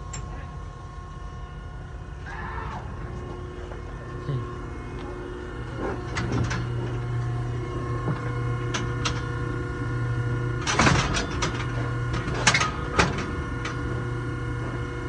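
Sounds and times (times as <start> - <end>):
steady mechanical hum: 0.0 - 15.0
metal chute clanking and rattling: 10.6 - 13.8.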